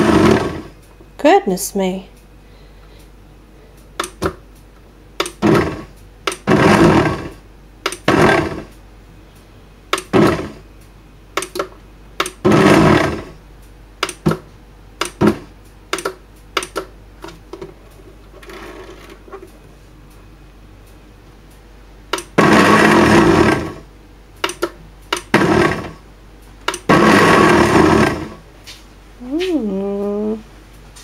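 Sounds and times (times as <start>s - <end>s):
blender motor pulsing: 0.0s - 0.8s, 5.2s - 8.7s, 10.0s - 10.6s, 12.2s - 13.4s, 22.2s - 23.9s, 25.2s - 26.0s, 26.7s - 28.4s.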